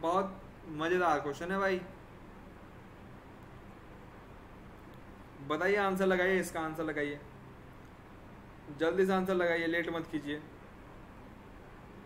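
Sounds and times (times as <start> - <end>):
faint room tone hiss: 0.0 - 12.0.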